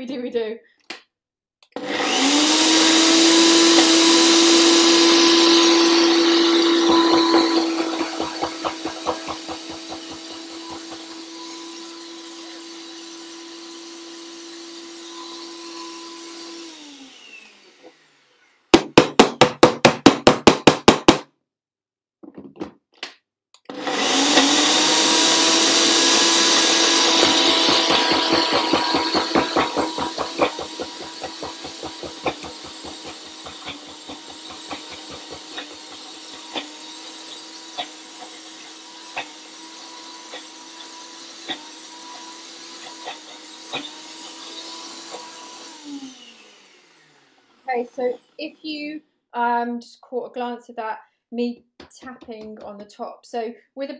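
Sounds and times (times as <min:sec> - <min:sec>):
blender grinding with rattle: 0:01.7 - 0:18.7, 0:23.6 - 0:48.7.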